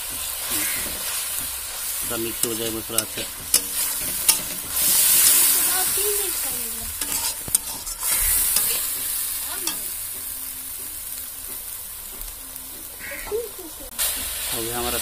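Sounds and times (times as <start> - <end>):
masala sizzling in a pan: 0.0 - 15.0
spatula scraping a metal pan: 0.2 - 10.1.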